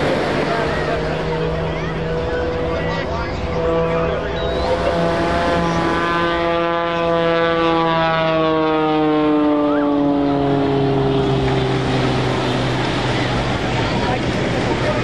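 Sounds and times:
propeller plane engine droning: 0.0s - 15.0s.

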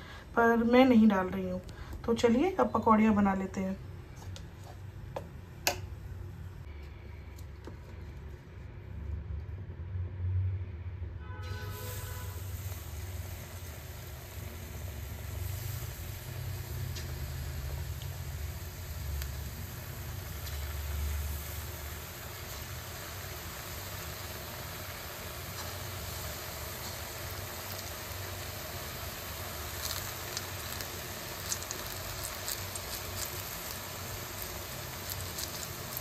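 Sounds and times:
food sizzling in hot oil: 11.5s - 36.0s
oil crackling and popping: 12.3s - 36.0s.

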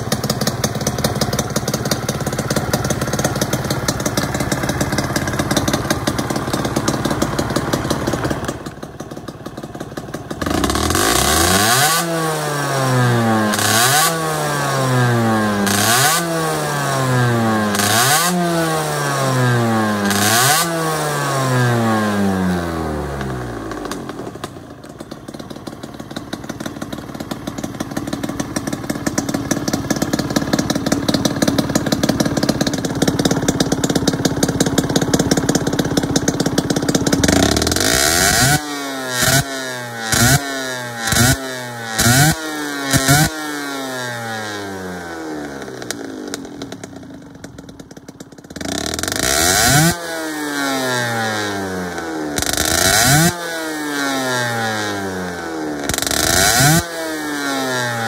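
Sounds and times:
two-stroke engine idling and revving: 0.0s - 58.0s.

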